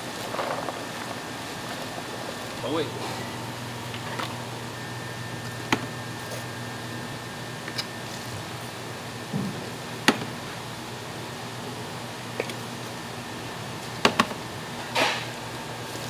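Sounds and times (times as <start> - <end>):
kitchen room hum: 0.0 - 16.0
faint held tone: 3.0 - 8.2.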